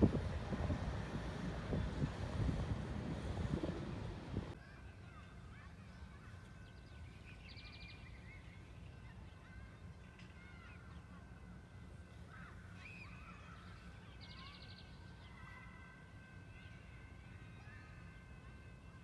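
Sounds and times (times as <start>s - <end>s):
low background rumble: 0.0s - 4.6s
faint birdsong chirps: 3.8s - 19.0s.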